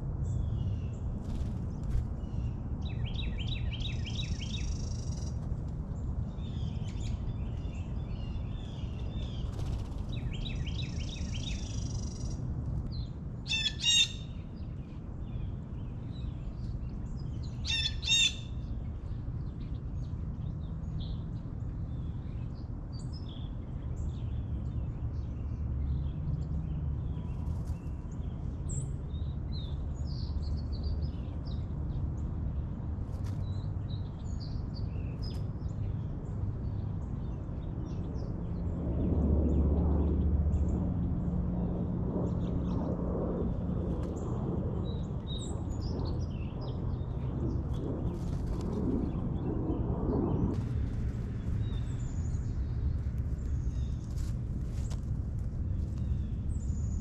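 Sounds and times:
harsh blue jay calls: 13.5s - 14.4s, 17.6s - 18.5s.

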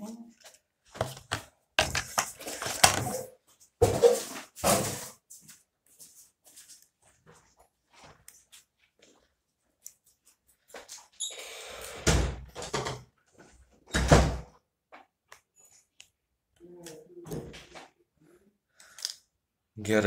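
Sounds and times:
handling rustling and scraping: 0.0s - 11.2s.

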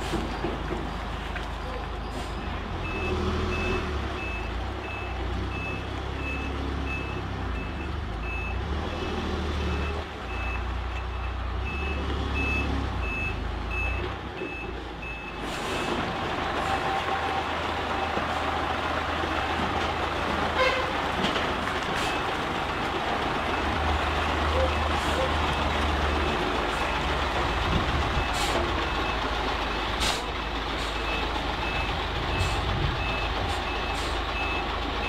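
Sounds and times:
truck reversing beeper: 0.0s - 21.0s, 21.9s - 35.0s
diesel truck engine: 0.0s - 35.0s.

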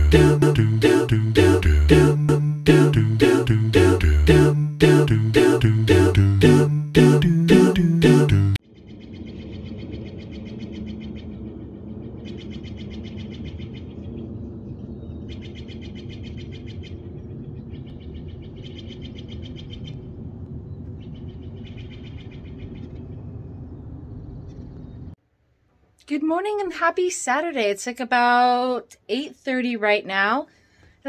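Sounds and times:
low outdoor rumble: 8.4s - 26.7s.

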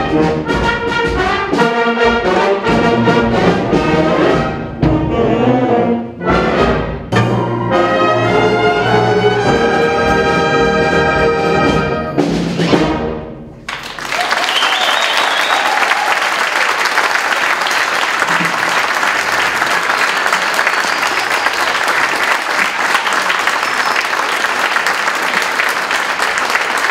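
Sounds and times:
audience applause: 13.7s - 26.9s.

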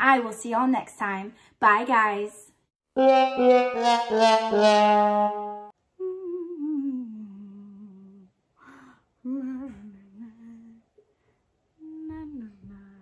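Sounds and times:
woman humming: 6.0s - 11.0s, 11.8s - 13.0s.

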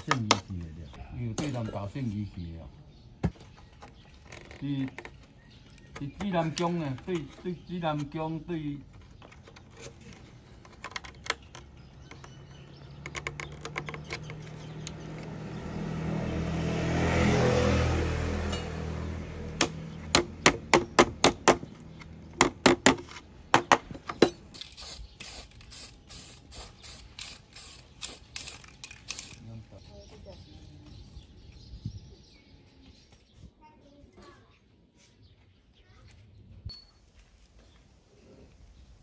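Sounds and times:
bamboo slats clicking and knocking: 8.9s - 15.4s, 19.5s - 24.8s
passing vehicle: 14.0s - 20.7s
spray can clicks: 24.6s - 29.4s.

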